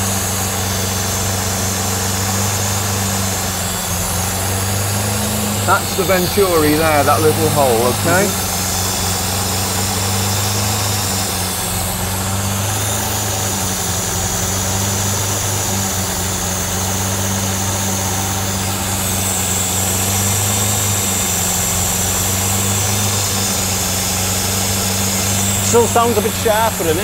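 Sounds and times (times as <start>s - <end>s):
car engine idling: 0.0s - 27.0s
air hissing through intakes: 4.9s - 8.9s, 25.1s - 27.0s.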